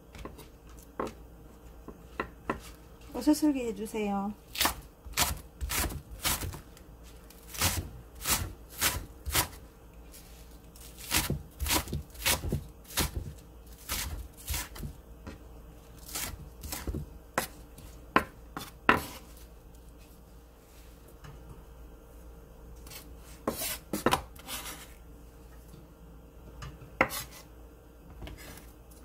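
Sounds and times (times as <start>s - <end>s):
knife slicing on wooden cutting board: 27.0s - 27.4s.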